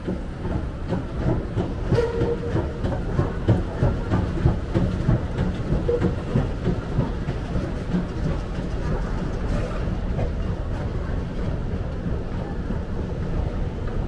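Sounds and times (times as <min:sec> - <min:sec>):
train rumbling and clattering: 0:00.0 - 0:14.0
train wheel squeal: 0:01.8 - 0:03.8, 0:05.7 - 0:06.8.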